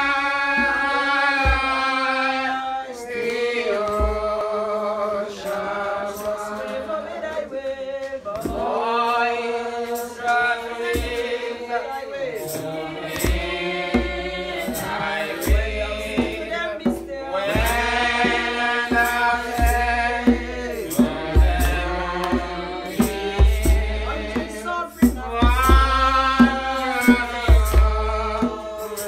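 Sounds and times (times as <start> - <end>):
djembe drum strokes: 0.0 - 2.6, 12.4 - 29.0
man singing with vibrato: 0.0 - 29.0.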